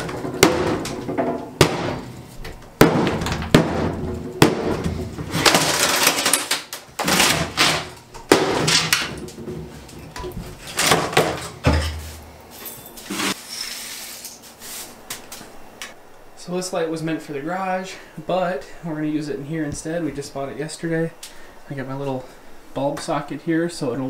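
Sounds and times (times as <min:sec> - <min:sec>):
wooden boards knocking and clattering: 0:00.0 - 0:12.0.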